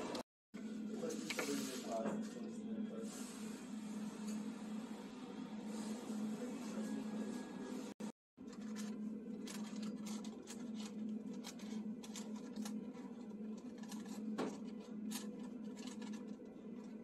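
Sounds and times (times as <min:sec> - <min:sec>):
steady low hum: 0:00.0 - 0:17.0
paper crinkling and folding: 0:08.4 - 0:17.0.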